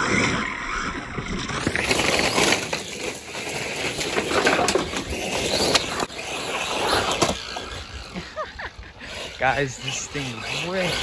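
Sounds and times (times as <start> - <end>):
clicks of flung stones: 0.0 - 6.1
toy truck tyres crunching gravel: 0.0 - 11.0.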